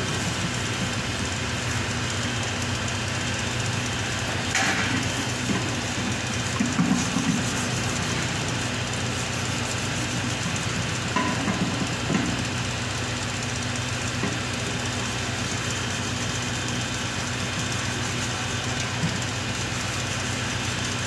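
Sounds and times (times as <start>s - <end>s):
hands rubbing wet metal: 5.0s - 10.9s.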